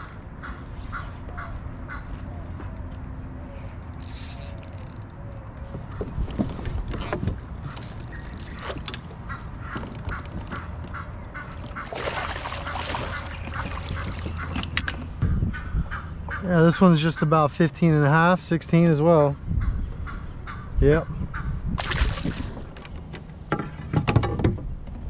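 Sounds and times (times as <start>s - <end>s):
birds calling: 0.0s - 18.0s, 18.7s - 22.8s.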